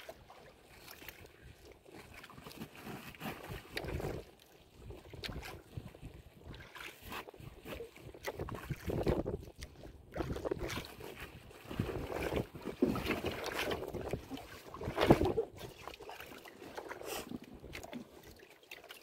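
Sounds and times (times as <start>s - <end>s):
sea water slapping against boat: 2.0s - 19.0s
wind buffeting microphone: 7.4s - 10.9s, 13.7s - 15.7s.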